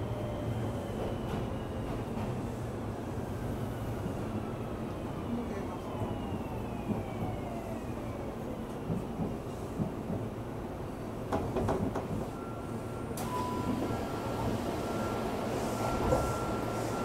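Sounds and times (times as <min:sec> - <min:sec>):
train wheels rumbling on rail: 0:00.0 - 0:03.4, 0:08.4 - 0:12.5.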